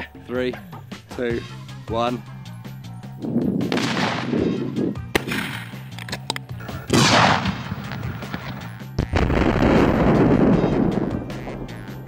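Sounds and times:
explosive blasts: 3.6s - 5.6s, 6.8s - 11.8s.

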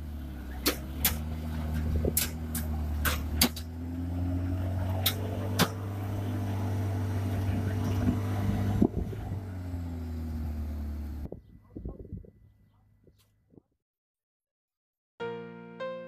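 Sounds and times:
low mechanical drone: 0.0s - 13.1s
sharp clicks and knocks: 0.6s - 3.7s.

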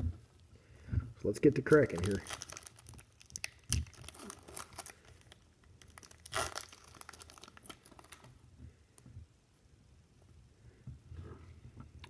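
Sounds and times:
foil wrapper crinkling: 1.6s - 8.4s
foil wrapper ripping: 1.7s - 8.3s.

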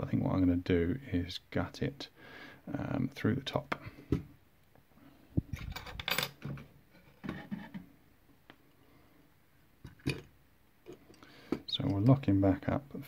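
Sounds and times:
metal lock tools clinking: 5.6s - 6.4s.

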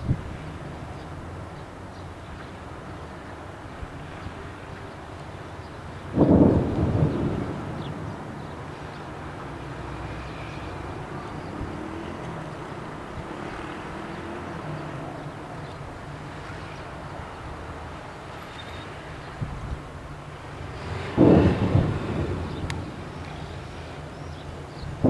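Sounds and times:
distant tank engines droning: 0.0s - 25.0s
distant blast rumbling: 5.7s - 25.0s.

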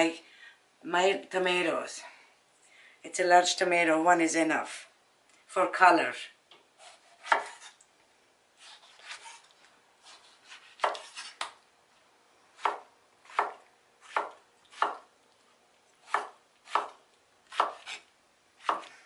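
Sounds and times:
knife slicing a tomato: 6.8s - 7.8s, 8.6s - 11.6s, 12.6s - 15.1s, 16.0s - 19.0s.

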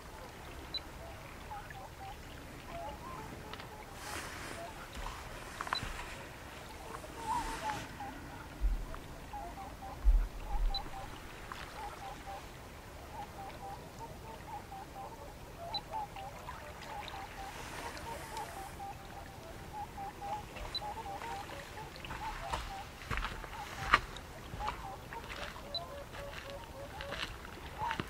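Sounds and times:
distant birds calling: 0.0s - 28.0s
thumps on microphone: 10.0s - 10.8s.

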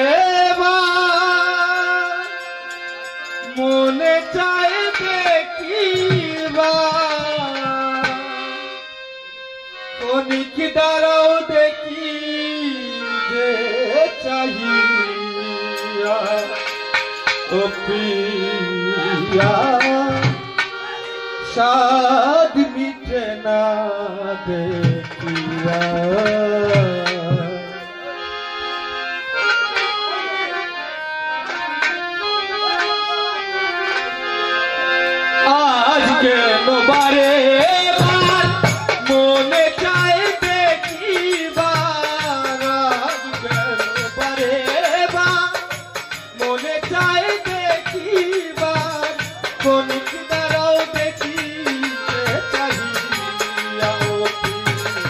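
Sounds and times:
harmonium: 0.0s - 55.0s
man singing folk song: 17.4s - 20.5s, 21.5s - 27.8s, 46.4s - 55.0s
tabla drum strokes: 24.7s - 27.6s.

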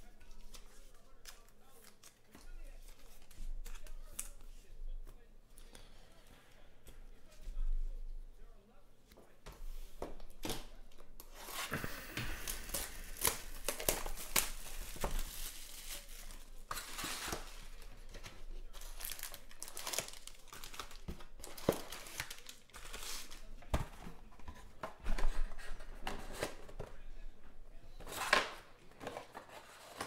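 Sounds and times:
wrapping crinkling and tearing: 0.1s - 4.5s, 10.3s - 23.5s
foil packs crinkling: 11.3s - 23.5s.

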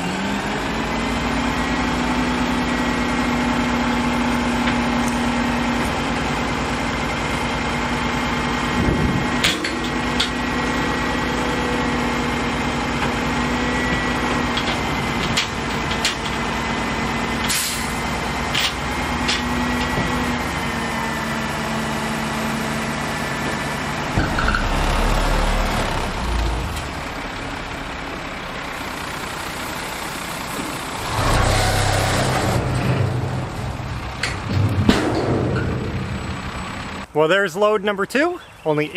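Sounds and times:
diesel engine running: 0.0s - 37.2s
low rumble: 32.2s - 37.0s.

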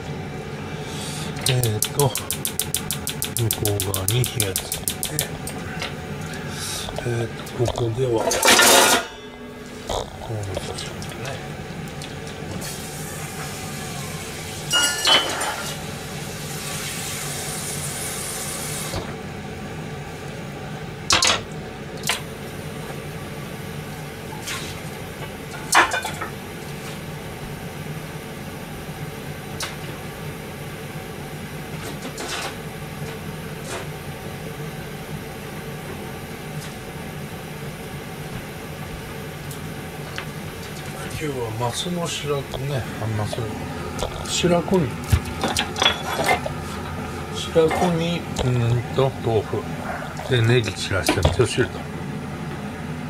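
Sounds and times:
steady low hum: 0.0s - 53.0s
hiss: 16.3s - 19.0s.

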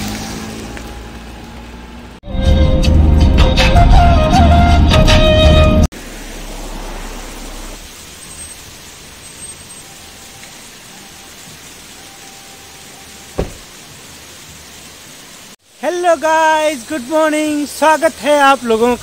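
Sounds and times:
waterfall rushing: 5.9s - 19.0s.

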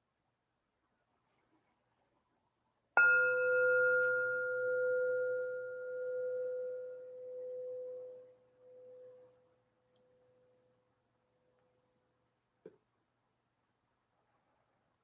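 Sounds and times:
singing bowl ringing: 3.0s - 9.6s.

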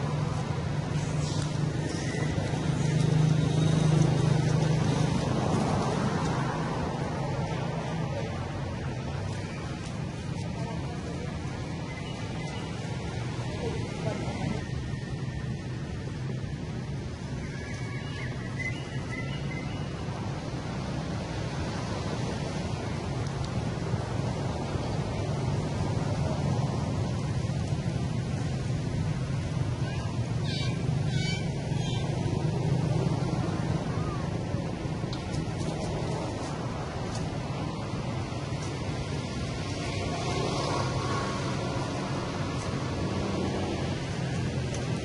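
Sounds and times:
vehicle engine passing: 0.0s - 11.8s
low rumbling background noise: 0.0s - 45.0s.

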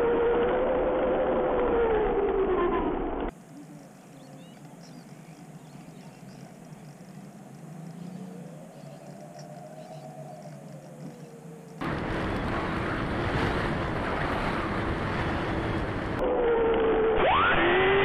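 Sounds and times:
faint plane motor passing: 3.3s - 16.2s.

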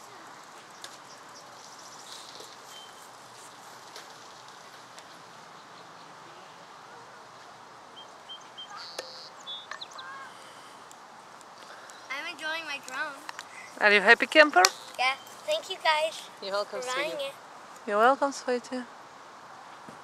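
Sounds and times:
open-air background noise: 0.0s - 20.0s
high bird chirps: 8.0s - 10.3s.

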